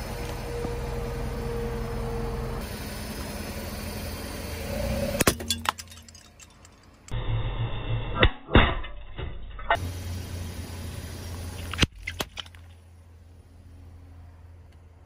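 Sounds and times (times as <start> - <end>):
car engine running low: 0.0 - 5.9, 9.8 - 11.9
sharp cracks: 11.6 - 12.8.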